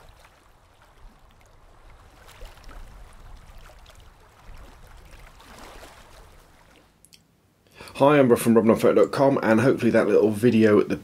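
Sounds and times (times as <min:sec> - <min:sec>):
wind rumbling on microphone: 0:00.0 - 0:06.7
water lapping at shoreline: 0:00.0 - 0:07.4.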